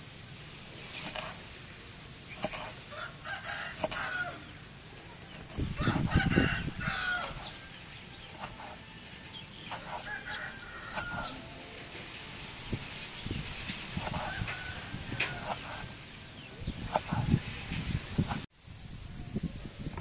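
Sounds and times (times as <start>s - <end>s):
rooster crowing: 2.9s - 4.6s, 5.7s - 7.8s, 8.8s - 11.6s, 14.1s - 15.9s.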